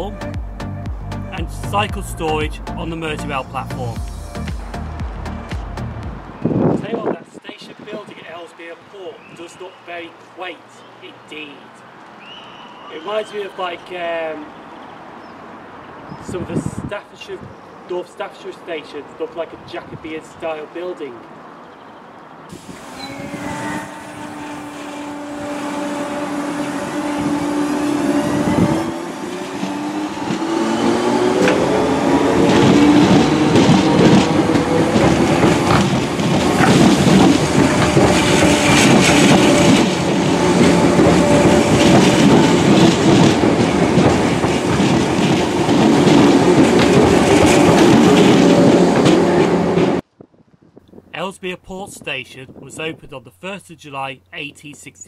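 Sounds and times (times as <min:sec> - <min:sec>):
electric train passing: 0:22.5 - 0:50.0
train wheel clicks: 0:32.4 - 0:49.2.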